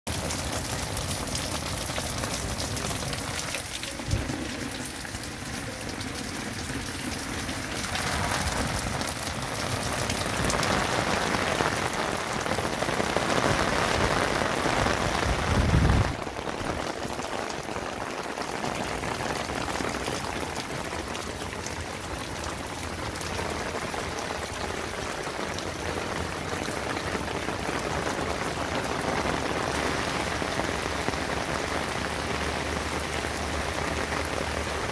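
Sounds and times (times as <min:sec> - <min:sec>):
heavy rain on concrete: 0:00.1 - 0:34.9
rain pattering on fabric umbrella: 0:00.1 - 0:34.9
low rumble: 0:03.8 - 0:09.1.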